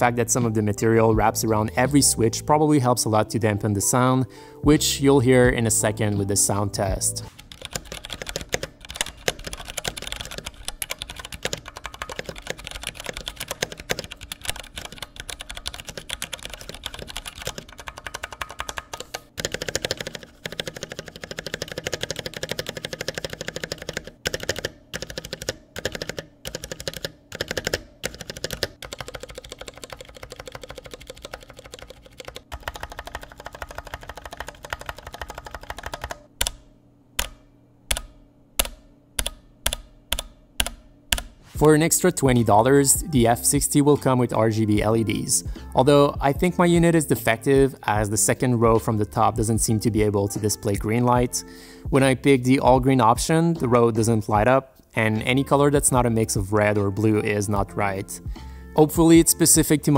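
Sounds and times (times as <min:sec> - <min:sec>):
fast typing on mechanical keyboard: 0:07.3 - 0:36.6.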